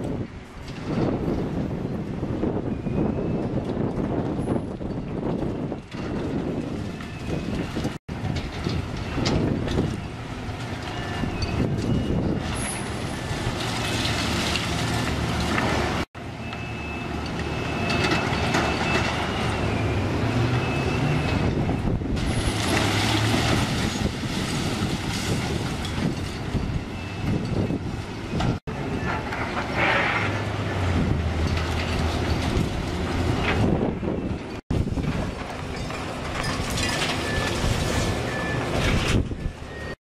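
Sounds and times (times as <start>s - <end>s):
excavator diesel engines running: 0.0s - 40.0s
concrete crunching and clattering: 3.6s - 16.1s, 21.3s - 27.7s, 28.3s - 39.9s.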